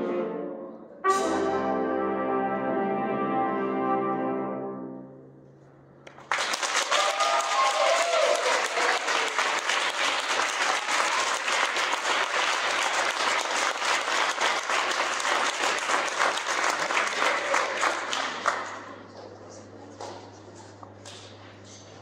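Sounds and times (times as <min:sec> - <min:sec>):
audience applauding: 0:06.1 - 0:19.3.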